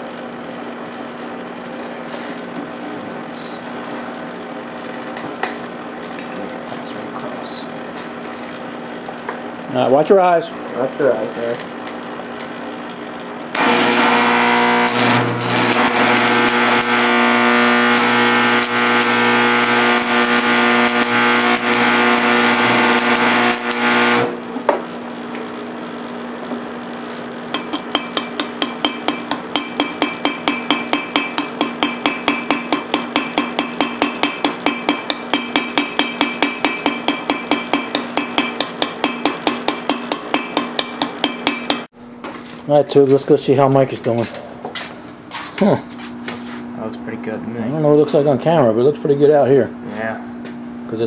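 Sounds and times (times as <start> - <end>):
arc welding crackling buzz: 7.5 - 44.2.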